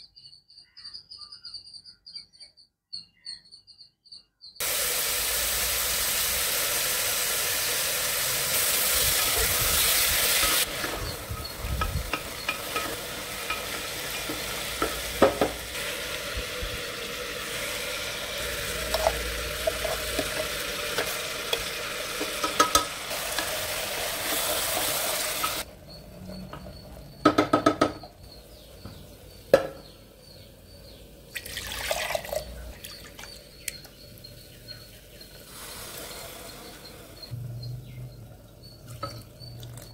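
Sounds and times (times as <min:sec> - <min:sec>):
food sizzling in a pot: 0:04.6 - 0:26.0, 0:35.2 - 0:37.3
metal jar knocking on cooker: 0:11.8 - 0:15.6, 0:27.2 - 0:28.1.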